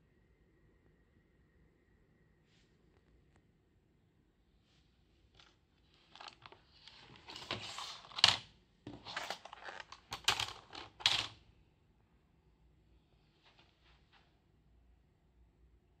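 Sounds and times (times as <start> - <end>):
plastic keyboard clattering: 6.1 - 11.4
sharp keyboard clacks: 9.2 - 11.3.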